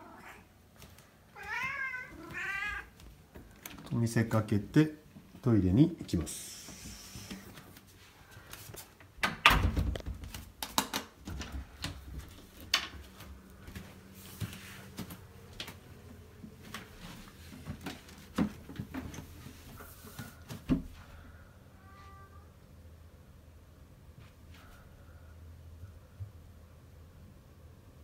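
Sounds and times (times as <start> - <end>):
door clicks and knocks: 9.2 - 10.2.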